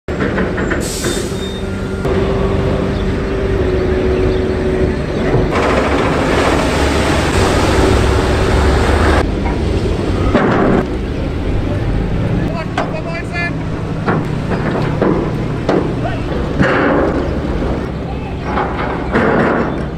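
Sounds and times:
vehicle engines rumbling: 0.1 - 19.9
loud rushing noise: 2.0 - 18.1.

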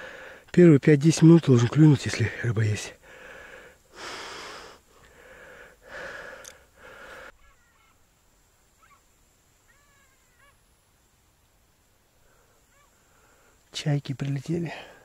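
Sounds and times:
distant gulls calling: 7.0 - 8.1, 8.7 - 10.7, 12.6 - 13.4.

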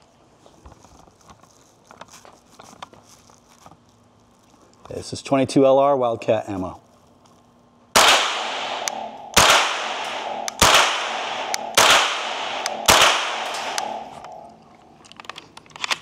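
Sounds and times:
rifle shots: 8.0 - 14.6.

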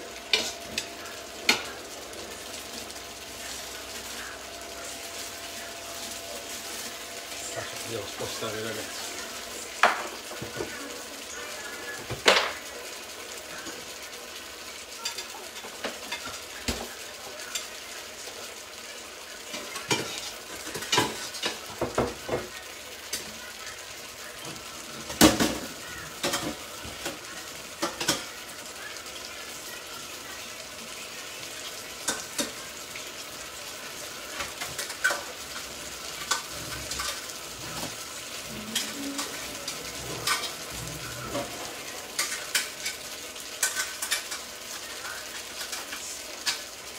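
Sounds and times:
pans sizzling and simmering: 0.0 - 46.9
utensils clinking against pots: 0.2 - 1.8, 19.5 - 22.4, 25.0 - 27.2, 34.3 - 38.0, 38.6 - 46.7.

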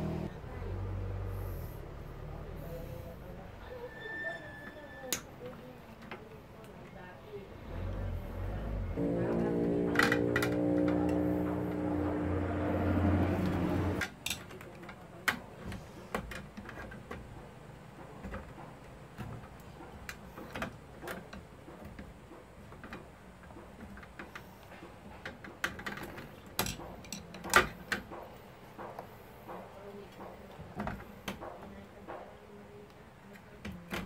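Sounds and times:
background music: 9.0 - 14.0.

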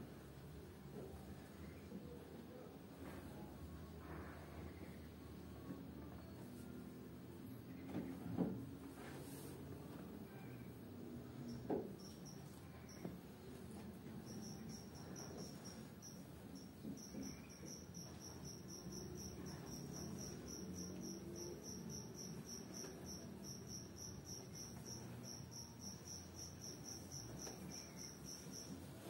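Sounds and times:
cricket chirping: 11.2 - 13.0, 14.2 - 29.0.

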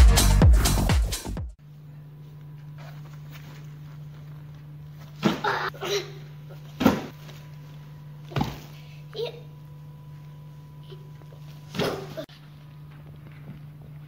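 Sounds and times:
electronic dance music: 0.0 - 1.6
low room hum: 1.6 - 14.0.

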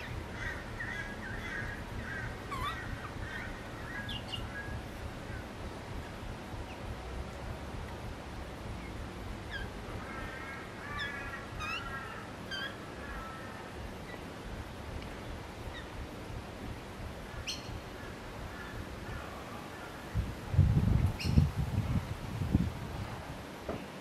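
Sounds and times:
bird layered call: 0.0 - 6.9, 8.8 - 16.0, 17.2 - 20.2
birds chirping: 0.0 - 21.6
low background rumble: 0.0 - 23.6.

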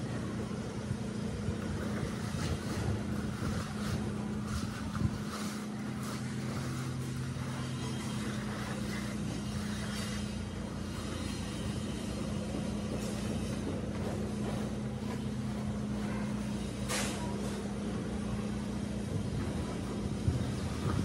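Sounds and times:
straightedge scraping wet mortar: 2.0 - 13.7.

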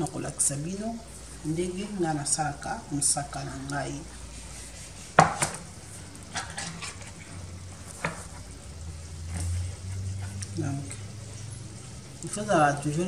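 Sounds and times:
tin can knocks on stone: 5.2 - 5.6.

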